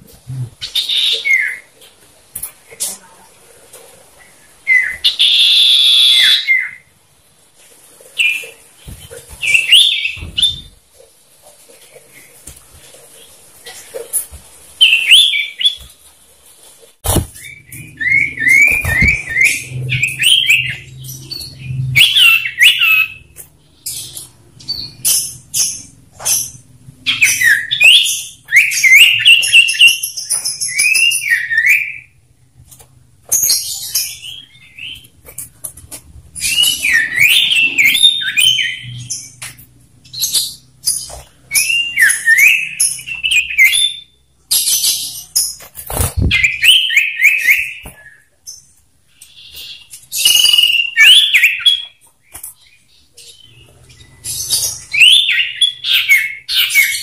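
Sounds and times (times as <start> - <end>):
birds singing whistled notes: 9.4 - 10.8, 17.3 - 32.2, 36.4 - 45.6, 46.2 - 52.0, 52.6 - 57.0.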